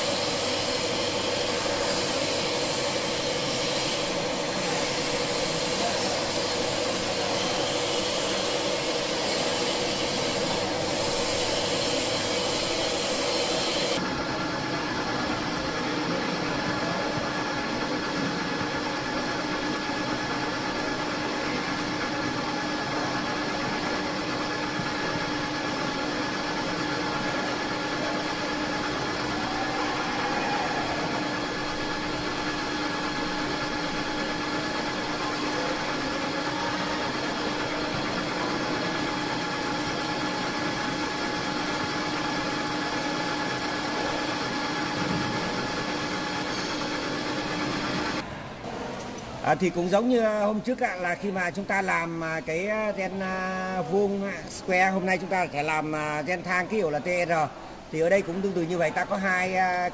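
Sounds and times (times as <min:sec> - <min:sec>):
metal lathe humming: 0:00.0 - 0:48.2.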